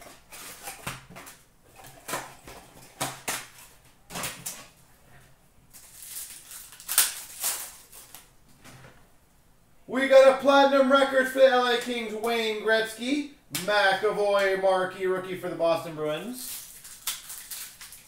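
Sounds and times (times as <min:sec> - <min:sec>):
foil packs crinkling and rustling: 0:00.0 - 0:04.8, 0:05.7 - 0:08.3, 0:16.4 - 0:18.0.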